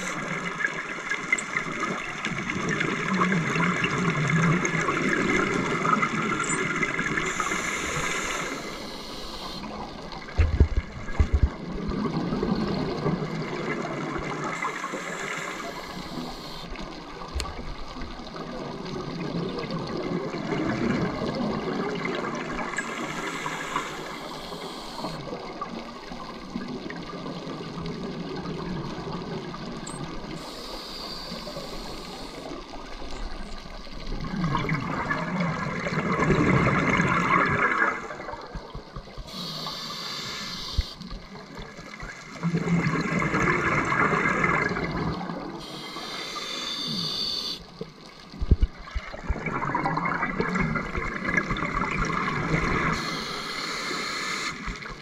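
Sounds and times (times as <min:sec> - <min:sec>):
hissing regulator inhalations: 0:07.2 - 0:09.7, 0:14.6 - 0:16.7, 0:22.8 - 0:25.2, 0:30.4 - 0:32.6, 0:39.2 - 0:41.1, 0:45.6 - 0:47.7, 0:52.9 - 0:54.9.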